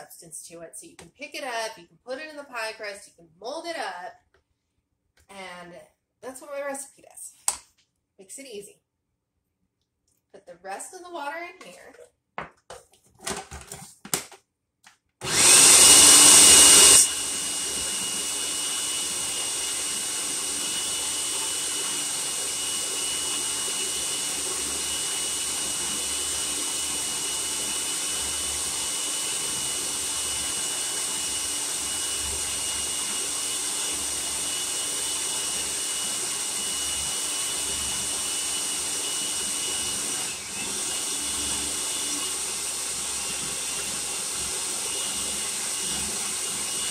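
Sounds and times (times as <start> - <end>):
food processor motor whining: 15.2 - 46.9.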